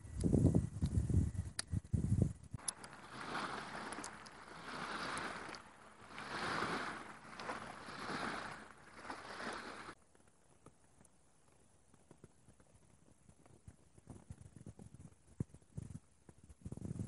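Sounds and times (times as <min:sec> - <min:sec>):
waves washing onto shore: 0:02.6 - 0:10.0.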